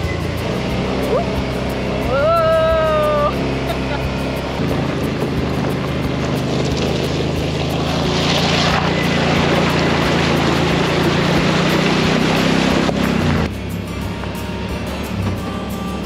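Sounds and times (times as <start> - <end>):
off-road vehicle engine droning: 0.0 - 16.0
water splashing off wheel: 4.8 - 13.5.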